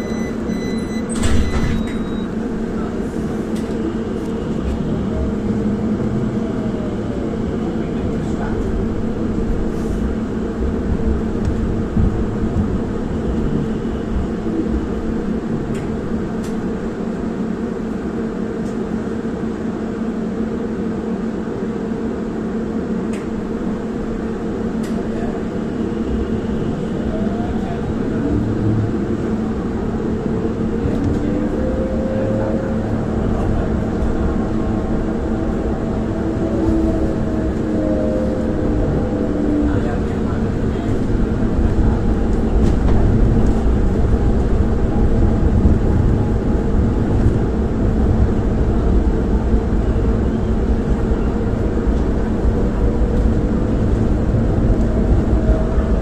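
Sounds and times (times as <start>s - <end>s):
vehicle cabin drone: 0.0s - 56.0s
whine sliding in pitch: 34.8s - 40.2s.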